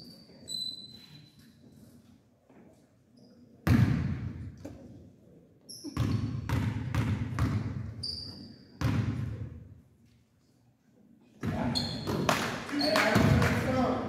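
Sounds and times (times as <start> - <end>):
sneaker squeaks: 0.0 - 1.8, 5.6 - 9.2, 11.4 - 13.3
basketball bouncing on gym floor: 3.6 - 4.7, 5.9 - 8.0, 8.8 - 9.6.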